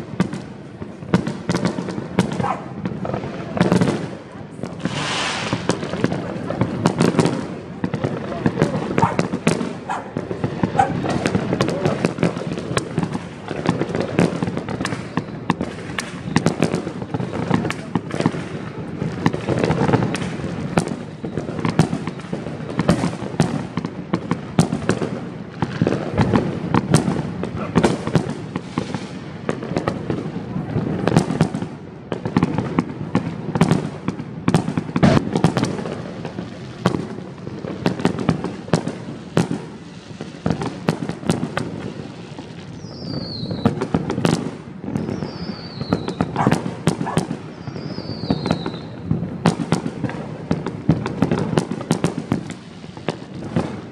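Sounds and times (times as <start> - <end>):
fireworks bangs and crackles: 0.0 - 53.9
falling firework whistles: 4.7 - 6.0, 14.6 - 16.6, 19.8 - 22.4, 41.6 - 49.8.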